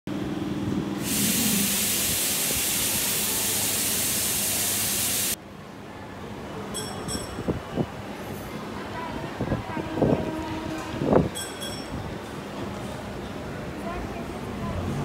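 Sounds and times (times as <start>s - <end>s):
compressed air hissing: 1.0s - 5.4s.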